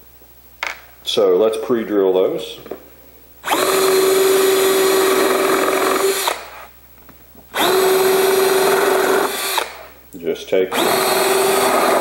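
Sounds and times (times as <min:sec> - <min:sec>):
power drill boring into plywood: 0:03.4 - 0:06.7, 0:07.5 - 0:09.9, 0:10.7 - 0:12.0.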